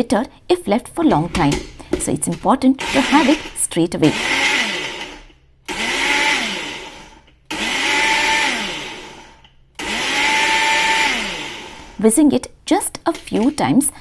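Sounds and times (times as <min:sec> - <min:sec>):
blender motor whining: 0:02.8 - 0:12.0.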